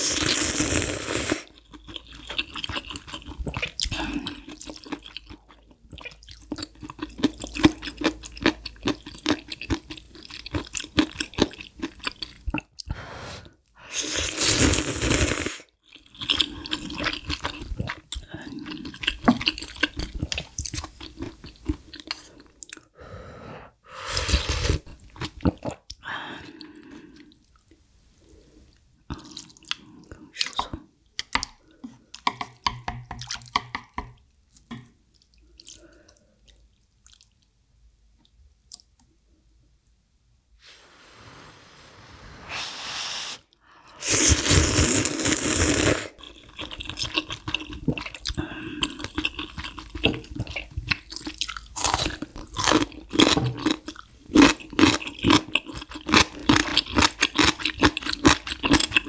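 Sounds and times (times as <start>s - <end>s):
loud slurp of noodle soup: 0.0s - 1.5s, 13.0s - 15.7s, 24.0s - 24.9s, 40.6s - 46.2s
soft chewing with small clicks: 1.5s - 12.9s, 15.8s - 23.0s, 24.8s - 27.9s, 28.6s - 40.0s, 46.2s - 59.0s
dense wet chewing: 46.2s - 59.0s.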